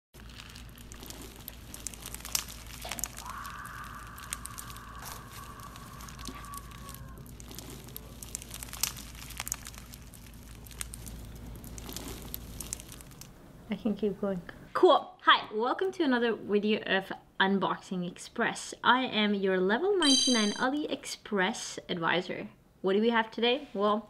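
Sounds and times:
slime crackling and popping: 0.2s - 13.4s
faint held tone: 20.0s - 20.6s.

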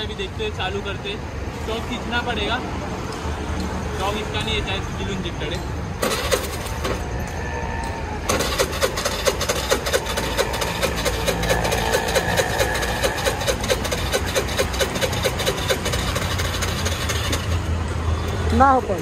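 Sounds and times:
petrol engine starting and idling: 5.9s - 19.0s.

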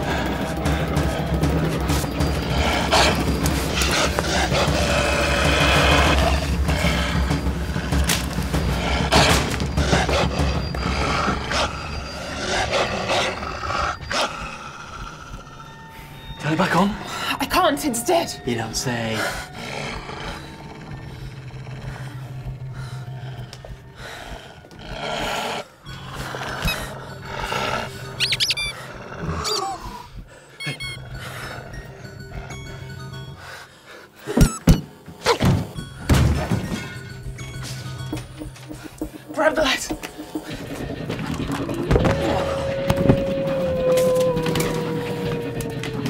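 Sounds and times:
deep horror score drone: 0.0s - 46.0s
creature growling and snarling: 2.2s - 15.8s, 24.4s - 30.2s
high squeaks: 28.0s - 28.8s, 30.6s - 31.2s.

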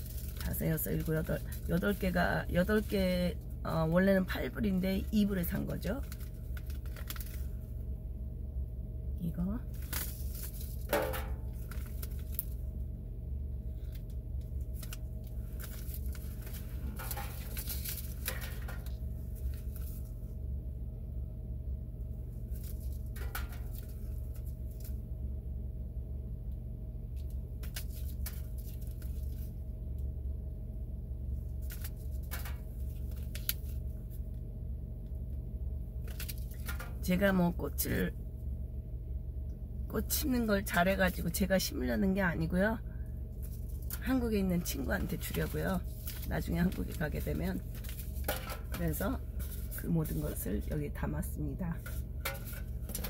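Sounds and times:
paper packets rustling: 0.0s - 2.9s, 5.0s - 7.6s, 9.7s - 12.6s, 13.8s - 20.1s, 22.4s - 25.0s, 27.6s - 29.5s, 31.5s - 33.9s, 36.0s - 37.0s, 43.3s - 50.8s, 51.7s - 53.0s
low hum in car cabin: 0.0s - 53.0s.

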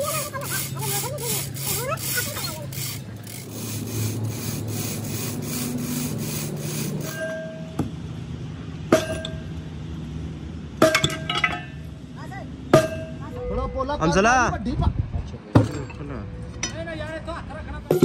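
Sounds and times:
metal scraping strokes: 0.0s - 7.4s.

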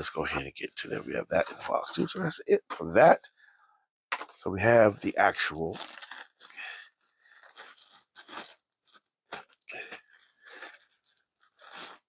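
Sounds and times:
plastic sleeve crinkling: 4.2s - 12.0s.

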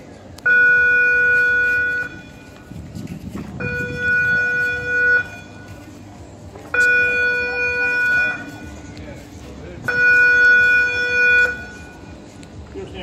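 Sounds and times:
electric warning horn buzzing: 9.9s - 11.9s.

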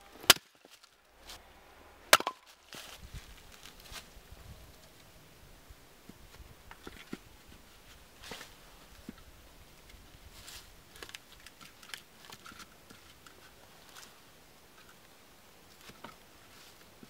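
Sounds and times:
dry leaves rustling: 0.4s - 5.1s, 6.9s - 9.2s, 9.8s - 14.9s, 15.7s - 17.0s.

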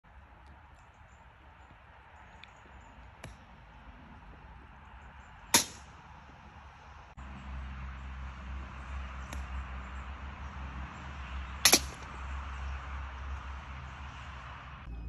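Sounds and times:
golf club striking ball: 5.5s - 6.0s, 8.0s - 10.6s, 11.4s - 13.2s.

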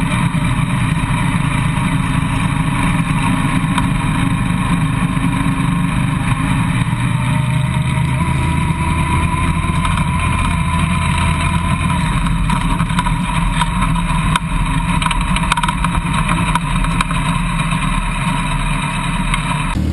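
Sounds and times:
tyres crackling on gravel: 0.0s - 19.9s
vehicle engine running: 0.0s - 19.9s.

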